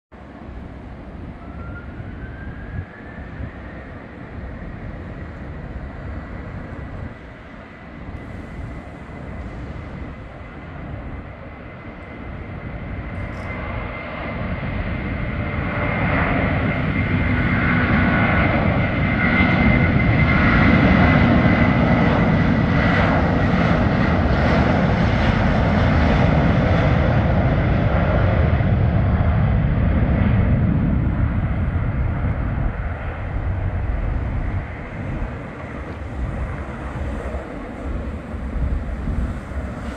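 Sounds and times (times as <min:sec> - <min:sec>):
jet engines spooling up: 0:00.4 - 0:12.2, 0:29.7 - 0:39.9.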